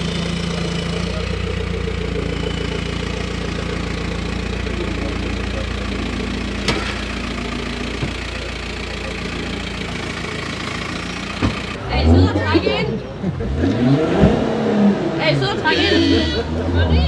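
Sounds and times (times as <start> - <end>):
van engine idling: 0.0 - 13.5.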